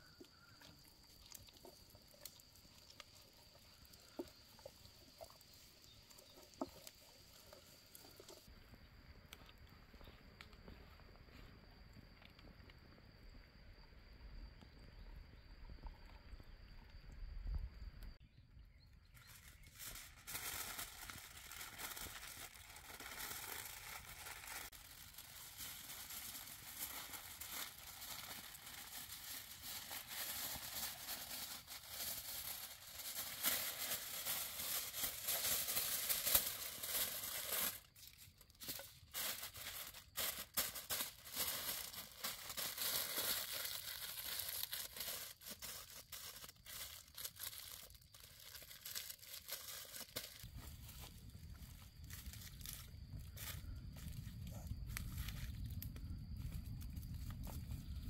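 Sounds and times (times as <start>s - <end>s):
aluminium foil crinkling: 19.2s - 50.7s.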